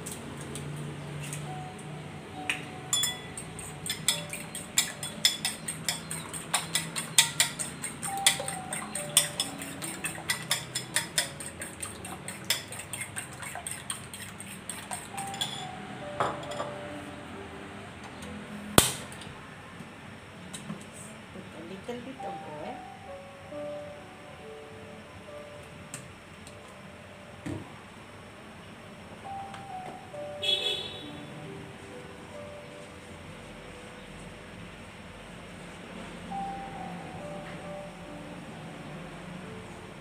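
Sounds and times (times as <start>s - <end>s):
fork clinking against ceramic bowl: 2.9s - 15.7s.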